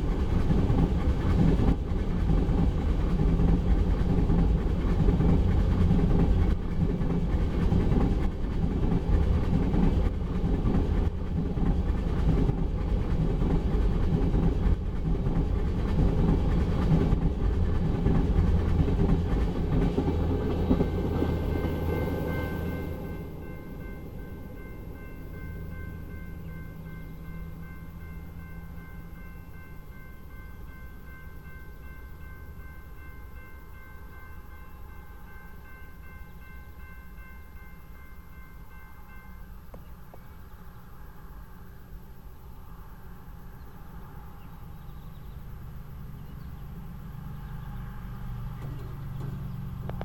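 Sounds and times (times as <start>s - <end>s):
freight train rumble: 0.0s - 50.0s
railroad crossing bell ringing: 20.0s - 40.6s
vehicle engine rumble: 44.0s - 50.0s.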